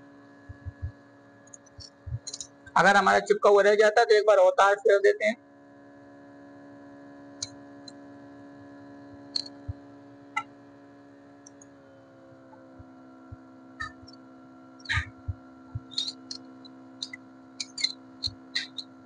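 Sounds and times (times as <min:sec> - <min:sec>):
vacuum pump humming: 0:00.0 - 0:19.0
cutting wire ticking and scraping: 0:01.4 - 0:02.5, 0:14.8 - 0:18.9.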